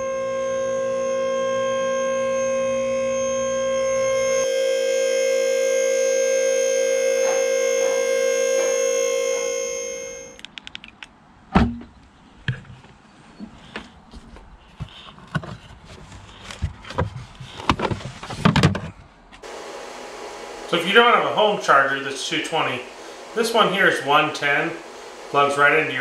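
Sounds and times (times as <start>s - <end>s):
hydraulic pump motor whine: 0.0s - 10.4s, 19.4s - 26.0s.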